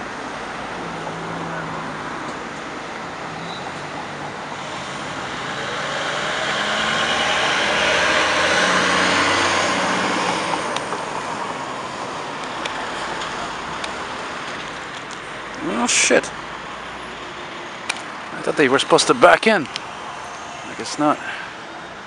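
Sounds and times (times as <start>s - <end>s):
fire truck diesel engine passing: 3.9s - 14.5s.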